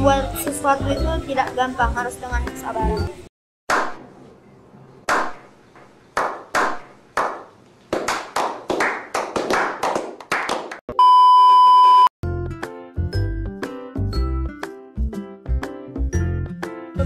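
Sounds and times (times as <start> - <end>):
group clapping: 6.2 - 10.8
loud electronic beep: 10.9 - 12.1.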